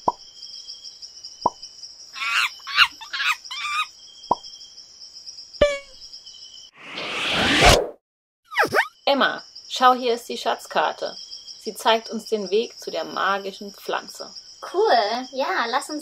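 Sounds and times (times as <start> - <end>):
chattering animal calls: 2.2 - 3.9
rising whoosh: 6.8 - 8.0.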